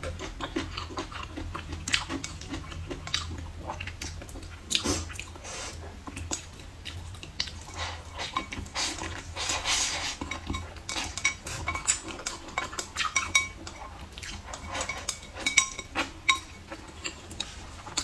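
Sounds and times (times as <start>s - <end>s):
noodle slurp: 7.7s - 10.3s.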